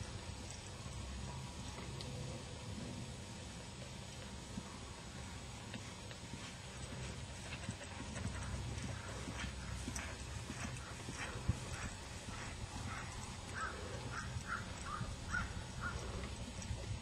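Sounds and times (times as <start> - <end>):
low steady rumble: 0.0 - 17.0
hoofbeats on grass: 4.5 - 17.0.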